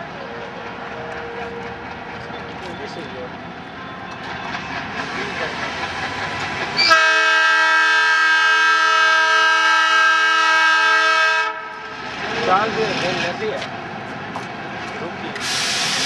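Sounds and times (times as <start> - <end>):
locomotive engine rumbling: 0.0 - 9.4
locomotive horn blast: 6.8 - 11.8.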